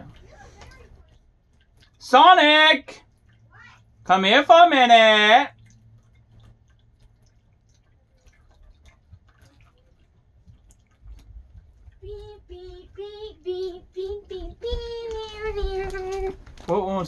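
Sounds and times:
small clicks and rustles: 0:00.0 - 0:02.0, 0:05.6 - 0:13.3, 0:14.0 - 0:17.0.

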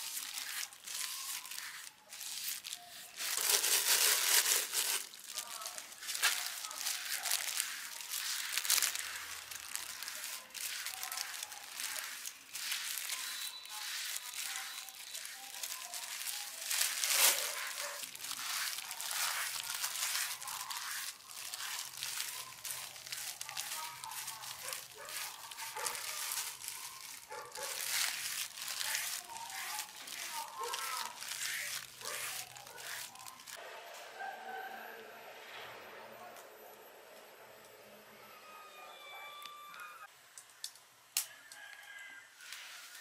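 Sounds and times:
wood fire crackling: 0:00.0 - 0:33.6
faint voices: 0:00.0 - 0:40.1.

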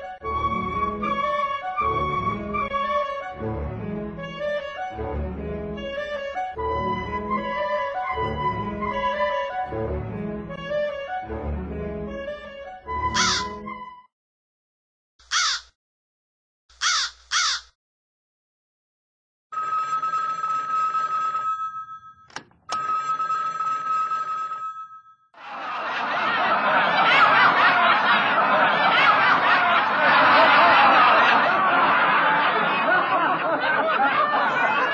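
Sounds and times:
crow cawing: 0:13.2 - 0:13.5, 0:15.3 - 0:15.7, 0:16.8 - 0:17.7
telephone ringing: 0:19.5 - 0:25.3
chattering and laughing voices: 0:25.4 - 0:34.9.

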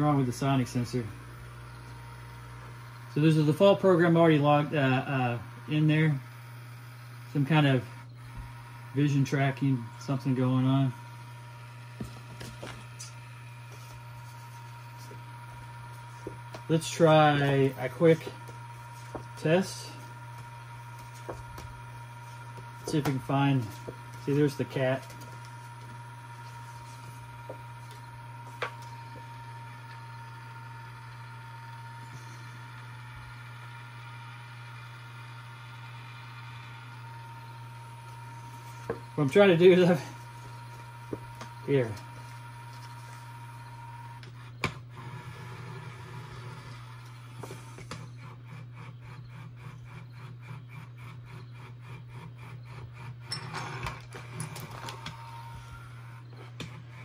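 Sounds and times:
steady low hum: 0:00.0 - 0:57.0
robot motors whirring: 0:05.4 - 0:57.0.

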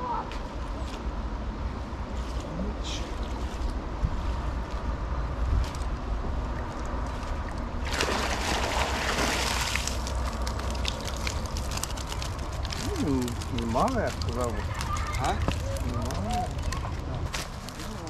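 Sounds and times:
wind buffeting microphone: 0:03.6 - 0:09.2.

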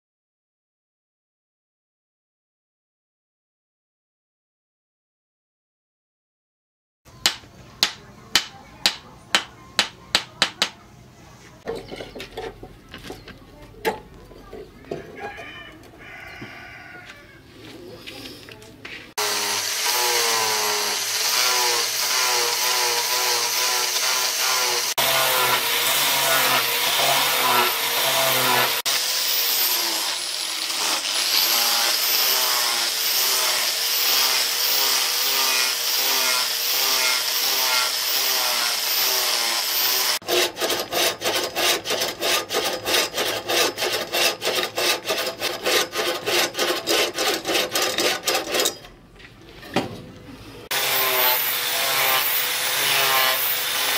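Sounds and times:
angle grinder sanding wood: 0:19.1 - 0:48.8, 0:50.7 - 0:53.9
hacksaw cutting wood: 0:19.1 - 0:48.8, 0:50.7 - 0:53.9.

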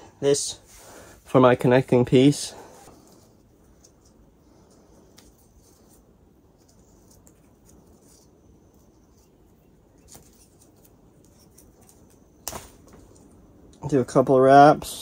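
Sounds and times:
hands rustling tape: 0:02.6 - 0:13.8.

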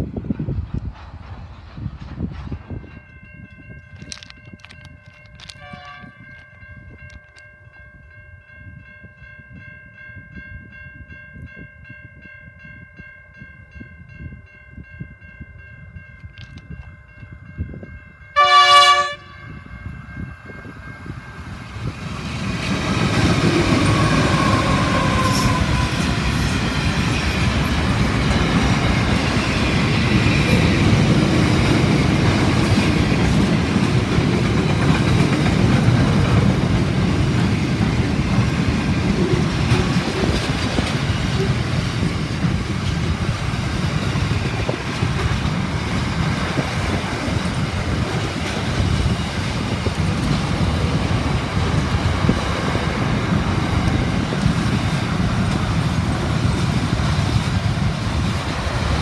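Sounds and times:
train wheels clattering on rail: 0:00.0 - 0:07.4, 0:20.4 - 0:59.0
train horn blast: 0:05.6 - 0:06.2, 0:18.4 - 0:19.4, 0:23.8 - 0:26.3
diesel locomotive rumble: 0:20.4 - 0:59.0.

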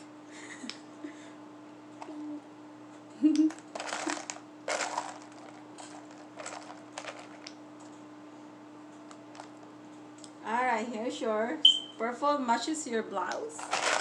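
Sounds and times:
plastic beads rattling in a box: 0:03.7 - 0:07.5, 0:13.6 - 0:14.0.

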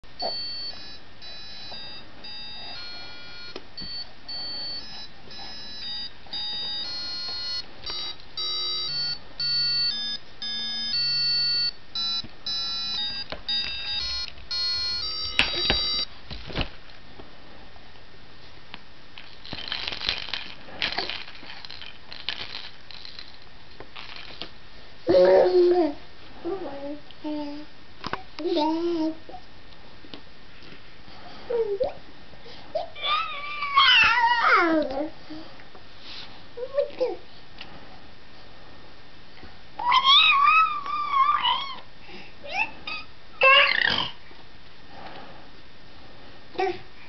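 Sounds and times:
electronic beeping melody: 0:00.2 - 0:16.1.

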